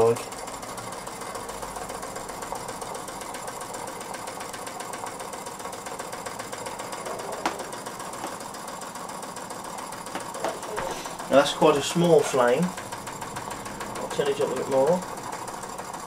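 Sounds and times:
model steam engine running: 0.0s - 16.0s.

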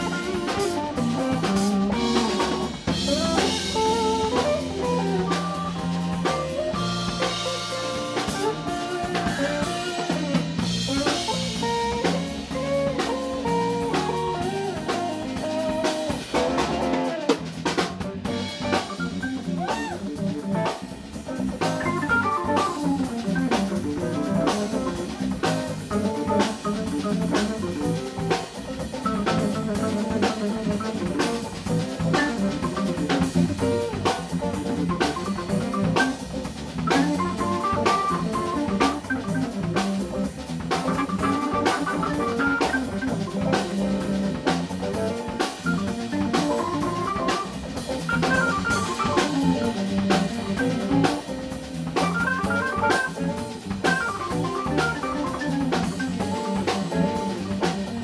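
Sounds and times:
guitar lead notes: 0.0s - 17.4s, 40.8s - 47.5s, 52.0s - 57.4s
bass guitar: 0.0s - 58.0s
drum beat: 0.0s - 58.0s
organ chords: 0.0s - 58.0s.

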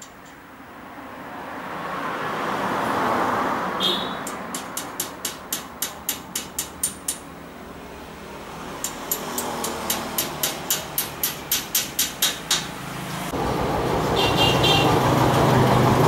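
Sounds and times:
passing vehicle: 0.0s - 5.8s, 6.7s - 16.0s
wrench clicking on a bolt: 4.2s - 7.3s, 8.8s - 12.7s.

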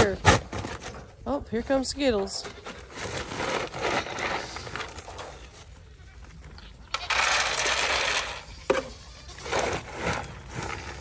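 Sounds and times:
feed pellets pouring: 6.9s - 8.5s.

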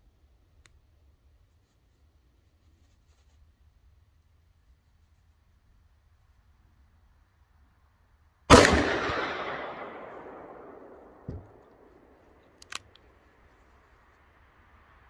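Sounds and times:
revolver shot echoing: 8.5s - 11.9s
sharp clicks: 12.4s - 13.1s.

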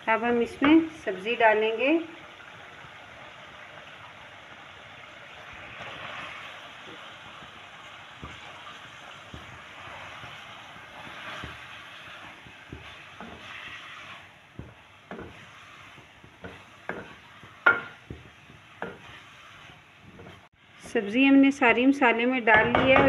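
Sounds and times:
masala sizzling in a pot: 0.0s - 23.0s
spoon knocking and scraping pot: 11.0s - 21.0s, 22.5s - 23.0s.

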